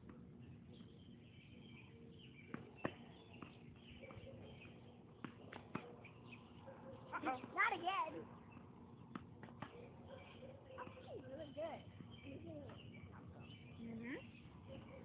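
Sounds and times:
faint bird chirps: 0:00.4 - 0:15.0
tennis ball pops: 0:02.5 - 0:06.1.

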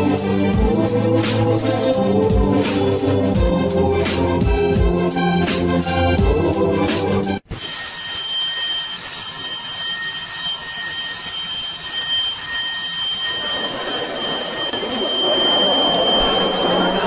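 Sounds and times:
electric bell buzzing: 0:07.6 - 0:17.0.

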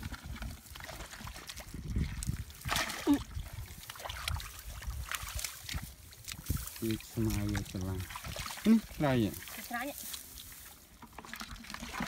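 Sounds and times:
muddy water splashing: 0:00.0 - 0:12.0.

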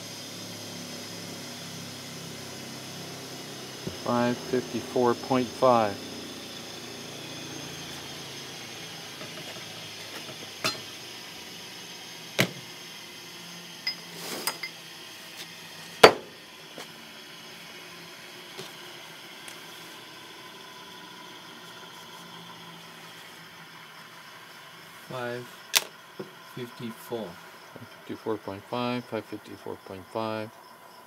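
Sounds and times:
faint steady hum: 0:00.0 - 0:31.0
metal rods clinking on workbench: 0:10.2 - 0:10.9, 0:13.9 - 0:14.8.

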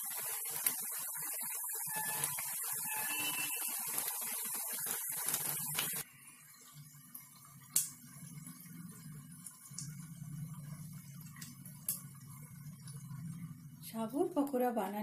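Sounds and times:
food sizzling in hot oil: 0:00.0 - 0:15.0
low steady hum: 0:06.7 - 0:15.0
sharp pops of oil: 0:07.7 - 0:08.0.

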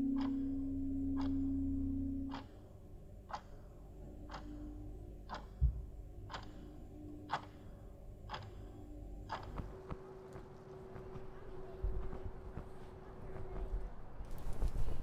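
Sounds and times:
sharp ticking: 0:00.0 - 0:02.6
faint held tone: 0:00.0 - 0:02.9.

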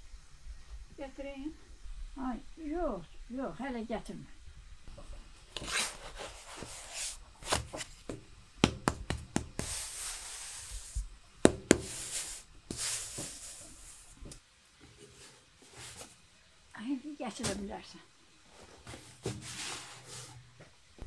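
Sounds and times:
rolling pin rubbing dough: 0:05.6 - 0:14.2.

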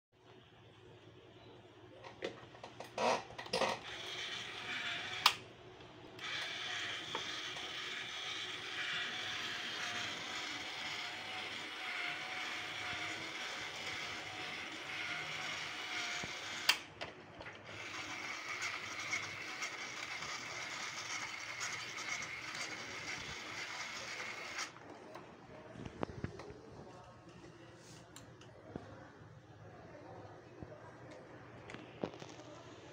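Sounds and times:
electric motor whirring: 0:03.8 - 0:05.4, 0:06.2 - 0:16.8, 0:17.7 - 0:24.8.

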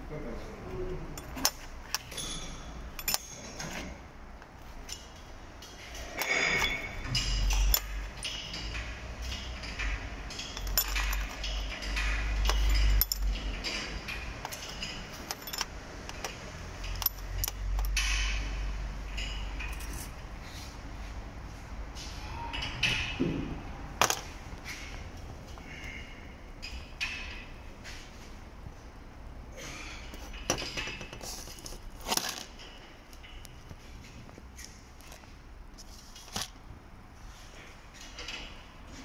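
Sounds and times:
metal parts clinking on bench: 0:01.2 - 0:03.9, 0:06.1 - 0:08.8, 0:10.3 - 0:18.3, 0:19.2 - 0:20.2.

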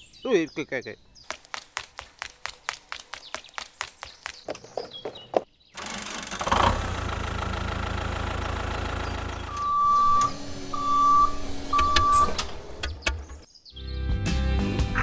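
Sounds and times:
tractor engine rumbling: 0:05.8 - 0:13.5.

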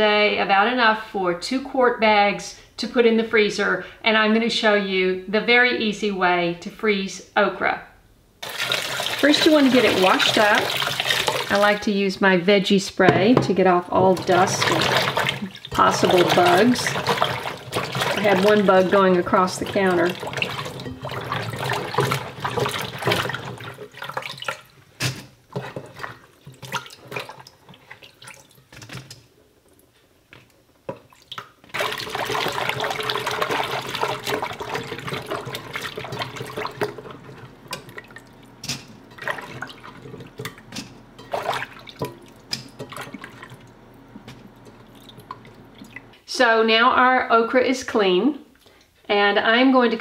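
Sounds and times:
running water rushing: 0:08.4 - 0:11.8, 0:13.9 - 0:24.8, 0:31.1 - 0:46.2
splashing and sloshing in a pot: 0:08.4 - 0:12.1, 0:13.0 - 0:46.2.

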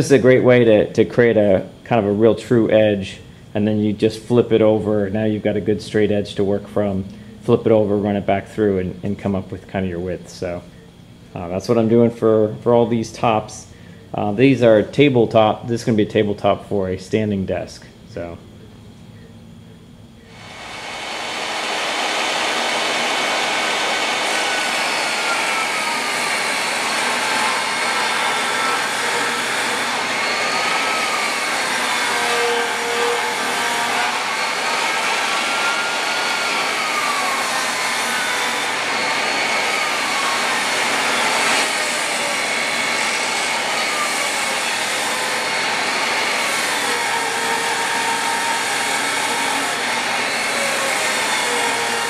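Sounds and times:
table saw cutting wood: 0:20.3 - 0:52.0.

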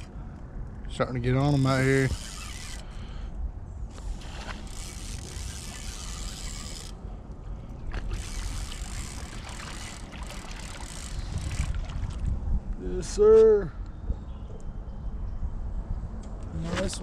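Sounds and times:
fishing reel whirring: 0:01.4 - 0:03.1, 0:03.9 - 0:07.0, 0:07.9 - 0:11.8.

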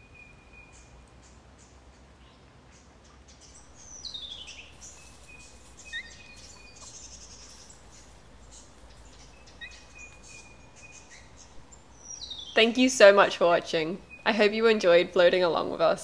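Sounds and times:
faint insect chirping: 0:03.3 - 0:12.9
bird whistling song: 0:03.4 - 0:08.1, 0:09.1 - 0:12.6.

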